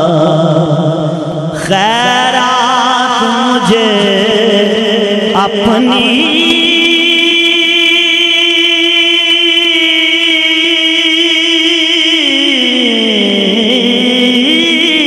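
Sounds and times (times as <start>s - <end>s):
man singing a long note: 0.0s - 15.0s.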